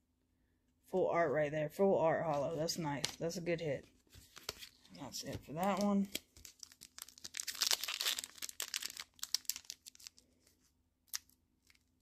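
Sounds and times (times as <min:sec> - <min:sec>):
foil wrapper crinkling and tearing: 0:05.6 - 0:12.0.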